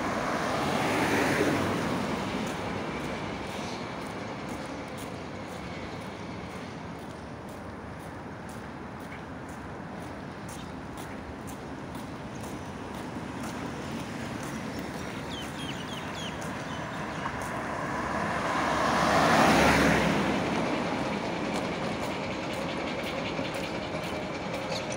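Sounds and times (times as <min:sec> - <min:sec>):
vehicle passing by: 0:00.0 - 0:05.1, 0:12.9 - 0:22.6
road noise: 0:00.0 - 0:24.9.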